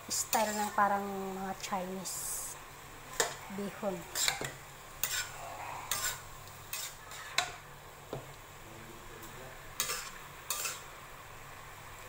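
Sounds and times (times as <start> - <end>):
metal spatula scraping a wok: 0.3 - 0.8, 4.1 - 7.6, 9.8 - 10.9.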